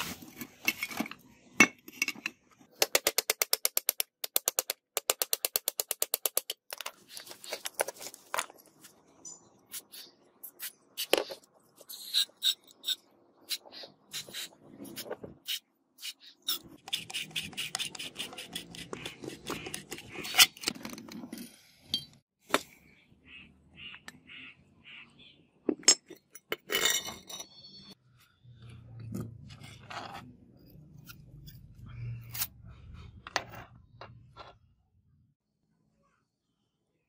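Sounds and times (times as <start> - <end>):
metal parts clinking and scraping: 25.8 - 28.0.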